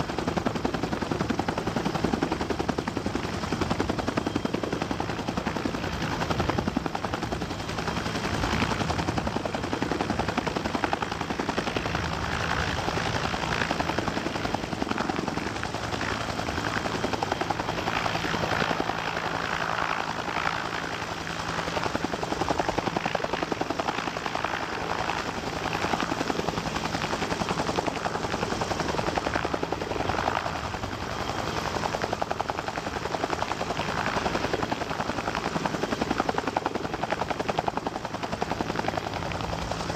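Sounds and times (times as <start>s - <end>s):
helicopter rotors chopping: 0.0s - 39.9s.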